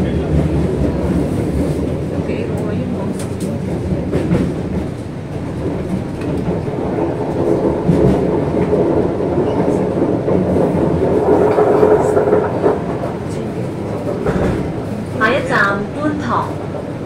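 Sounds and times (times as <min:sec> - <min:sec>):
train wheels rumbling on track: 0:00.0 - 0:17.0.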